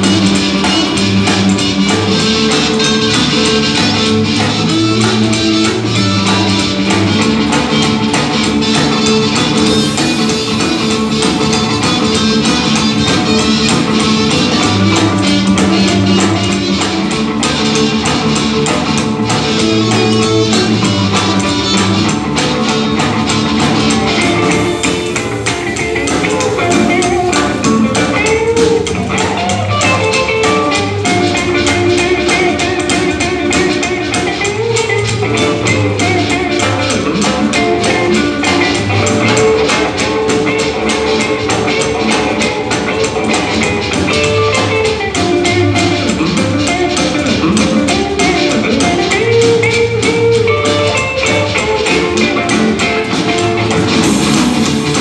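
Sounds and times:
drum kit: 0.0 - 55.0
electric guitar: 0.0 - 55.0
upright bass: 0.0 - 55.0
harmonica: 19.0 - 32.0.

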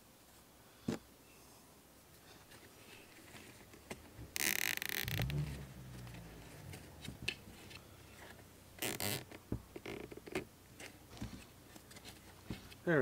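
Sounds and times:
zip tie rasping through ratchet: 4.3 - 7.8, 8.8 - 10.4.

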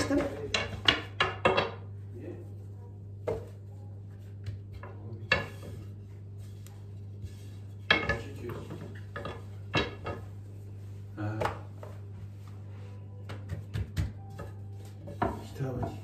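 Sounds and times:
rolling pin knocking on counter: 0.0 - 1.9, 13.3 - 16.0
steady low hum: 0.0 - 16.0.

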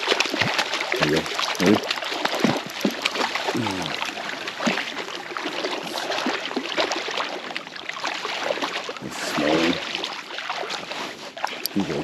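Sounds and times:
fish thrashing water splashing: 0.0 - 12.0
person speaking: 1.0 - 1.8, 3.6 - 4.0, 9.0 - 9.8, 11.6 - 12.0.

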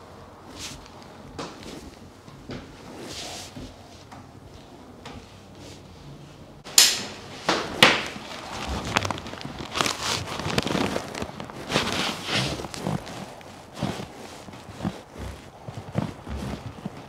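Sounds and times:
rustling: 0.4 - 4.1, 7.2 - 17.0.

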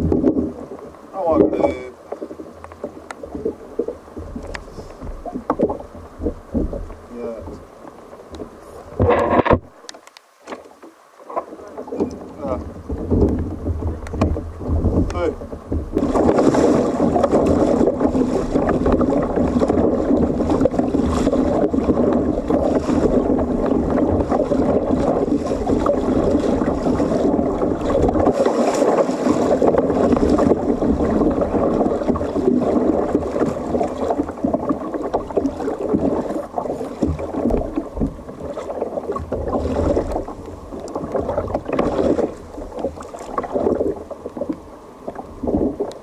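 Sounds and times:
wind on microphone: 0.0 - 1.9, 11.4 - 44.5, 45.1 - 46.0
water lapping against hull: 0.0 - 46.0.

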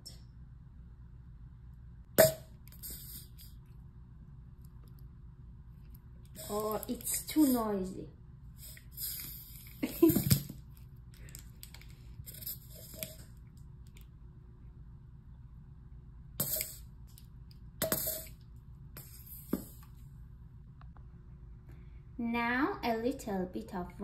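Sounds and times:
squeeze bottle hissing squirts: 2.2 - 3.5, 8.6 - 9.8, 16.4 - 16.8.

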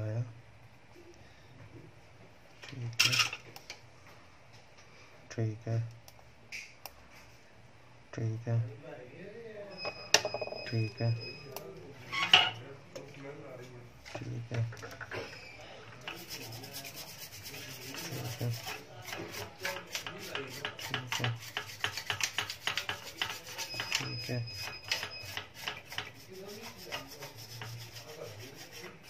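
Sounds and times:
probe tips scraping and tapping: 16.0 - 29.0.

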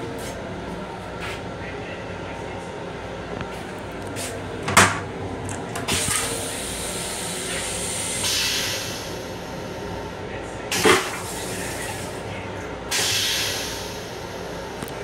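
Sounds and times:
low rumble of moving train: 0.0 - 15.0
toilet flush clunk: 4.6 - 8.9, 10.7 - 12.2.

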